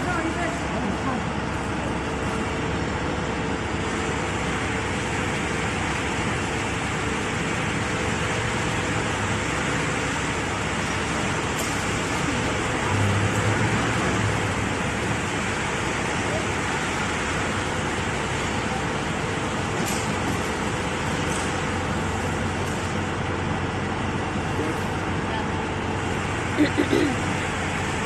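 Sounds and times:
factory machinery hum: 0.0s - 28.0s.

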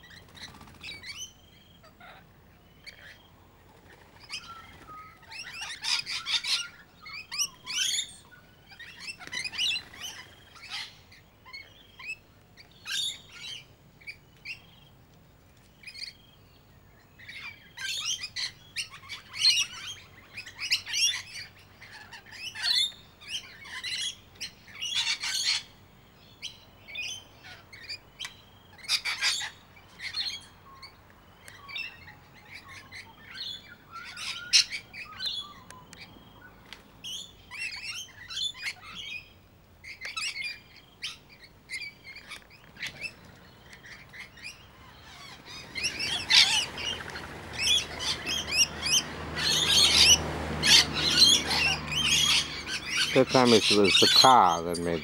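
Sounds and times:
lorikeets chattering calls: 4.2s - 12.2s, 12.8s - 14.9s, 17.2s - 55.0s.

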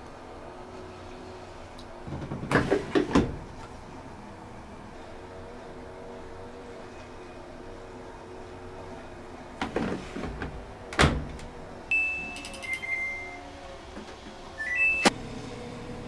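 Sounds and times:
washing machine drawer knocking shut: 2.1s - 3.5s, 9.6s - 11.4s
control panel beeping: 11.9s - 13.4s, 14.6s - 15.1s.

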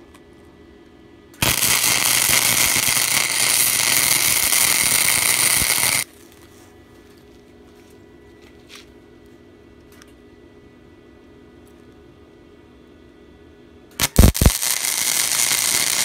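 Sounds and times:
welding arc crackling: 1.4s - 6.1s, 14.0s - 16.0s.

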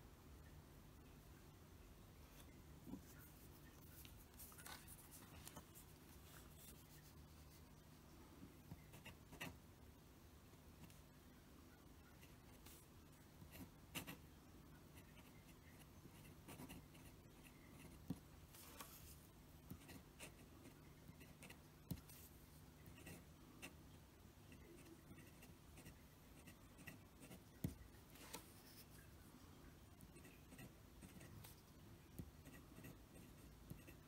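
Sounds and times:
pen nib scratching on paper: 32.2s - 34.0s.

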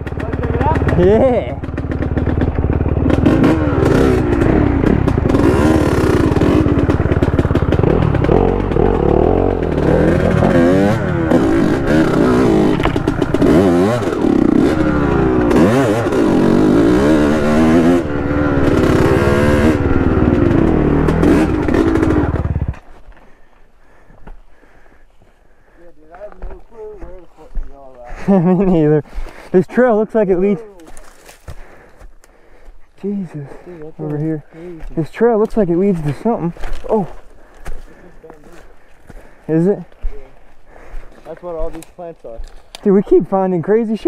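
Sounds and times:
dirt bike engine revving: 0.0s - 22.8s.

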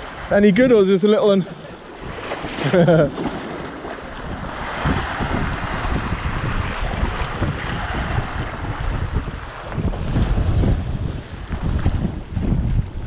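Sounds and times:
sea waves breaking on rocks: 0.0s - 13.0s
wind buffeting microphone: 0.0s - 13.0s.

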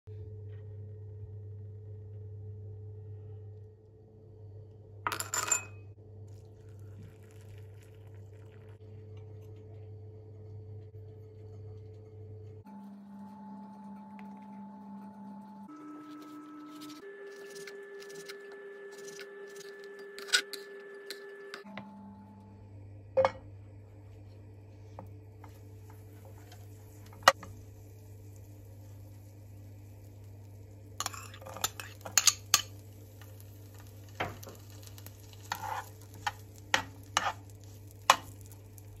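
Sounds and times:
low steady hum: 0.1s - 39.0s
water pouring into ceramic bowl: 6.3s - 8.8s
butter sizzling in pan: 25.5s - 39.0s.

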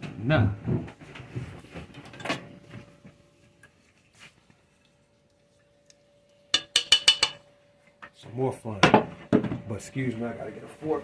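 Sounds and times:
soft knocks and rustles: 0.0s - 3.2s
faint steady hum: 0.0s - 11.0s.

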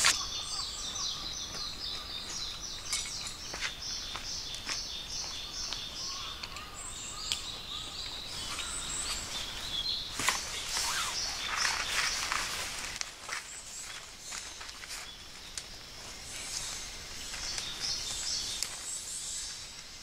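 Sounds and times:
birds chirping: 0.0s - 20.0s
tent fabric rustling: 10.2s - 15.2s.

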